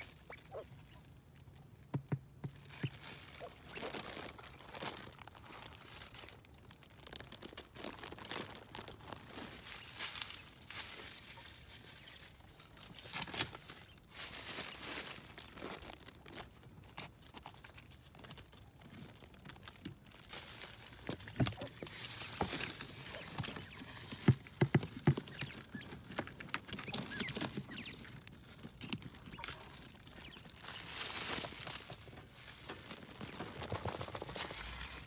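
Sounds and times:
dry leaves rustling: 2.5s - 35.0s.

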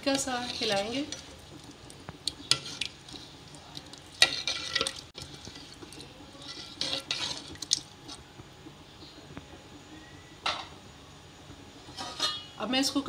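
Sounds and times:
ladle scraping and sloshing in pot: 0.0s - 8.2s, 11.8s - 12.5s.

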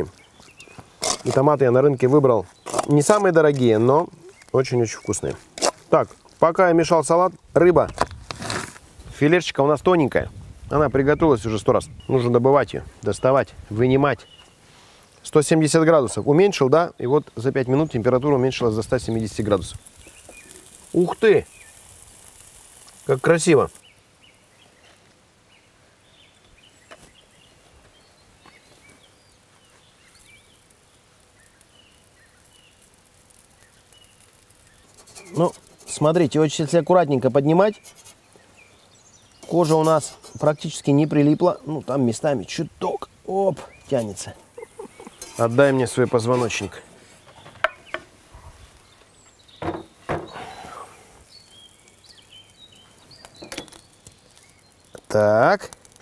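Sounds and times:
small birds chirping: 0.0s - 56.0s
faint bird chirps: 37.7s - 55.6s.

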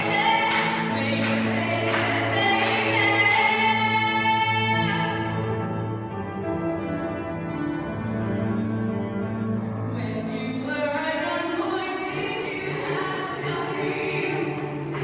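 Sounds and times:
piano accompaniment: 0.0s - 10.9s
girl singing with chorus: 10.8s - 14.9s.

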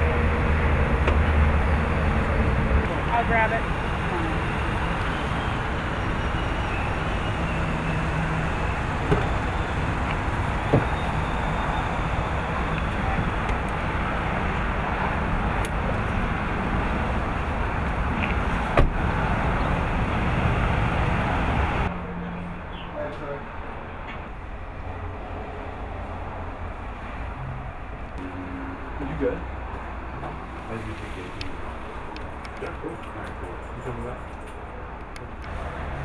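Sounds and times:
traffic and vehicle engines: 0.0s - 36.0s
low hum: 27.3s - 30.5s.

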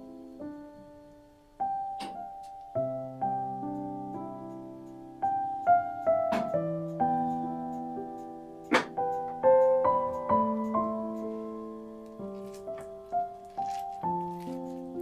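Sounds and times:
soft piano melody: 0.0s - 15.0s.

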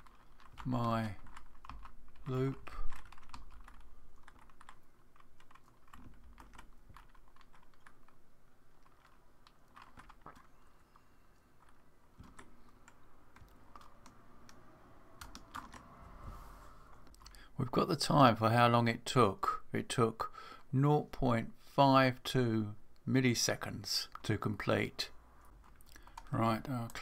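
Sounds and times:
computer keyboard typing: 0.0s - 14.6s, 15.2s - 15.9s, 25.6s - 27.0s.

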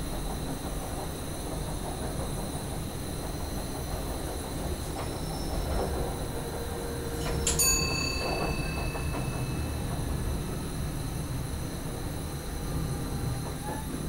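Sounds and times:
train low rumble: 0.0s - 14.0s
thin high ringing tones: 7.2s - 11.0s.

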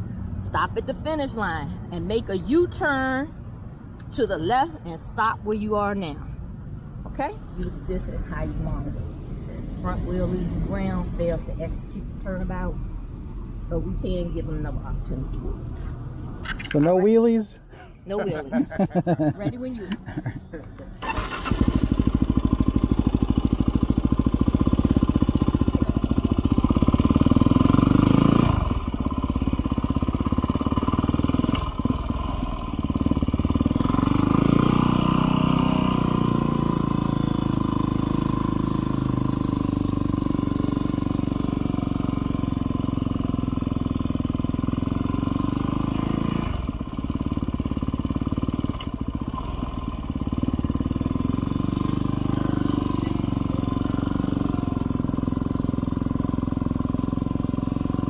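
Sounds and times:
motorcycle engine running: 21.0s - 58.0s.

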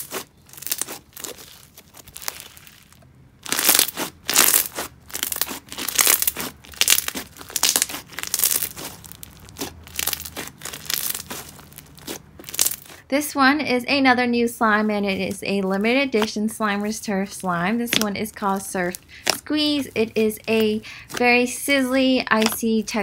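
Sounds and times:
slime crunching and popping: 0.0s - 13.1s, 17.8s - 23.0s.

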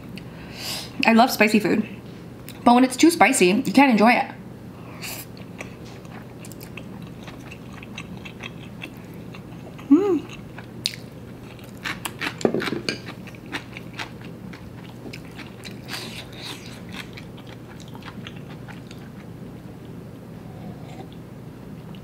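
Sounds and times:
person chewing noodles: 5.3s - 19.3s.

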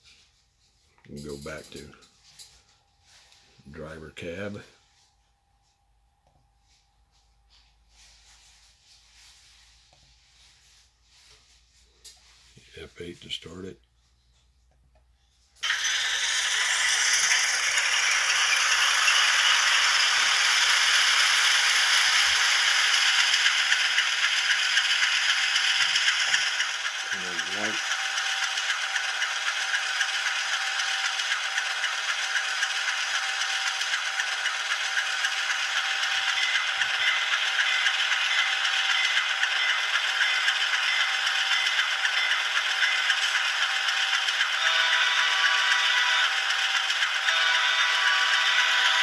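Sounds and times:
thin rattly diesel engine sound: 15.6s - 49.0s.

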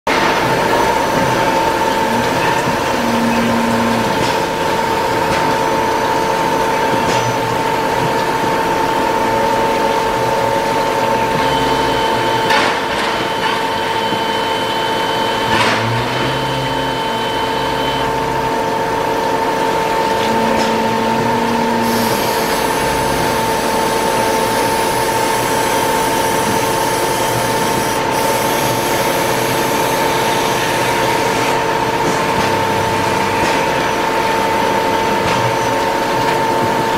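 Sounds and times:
lathe machine whine: 0.1s - 36.9s
higher steady tone: 1.9s - 4.6s, 20.0s - 27.7s
coolant spray hissing: 21.5s - 31.4s.

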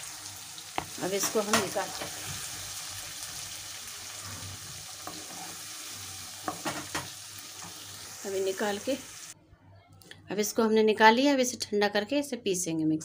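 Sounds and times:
masala sizzling in a pan: 0.0s - 9.4s
spatula scraping a pan: 3.9s - 8.1s.

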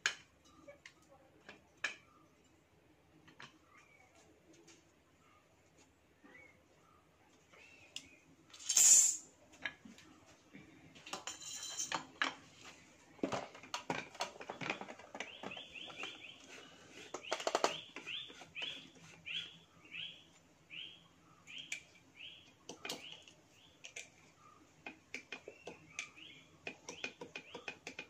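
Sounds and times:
metal parts clicking and knocking: 8.5s - 9.2s, 11.0s - 12.4s.

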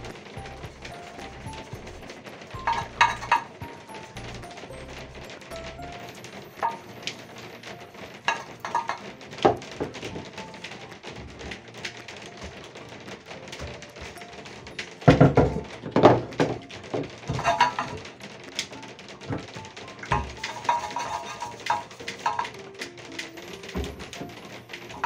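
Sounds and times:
soft background music: 0.0s - 25.0s.

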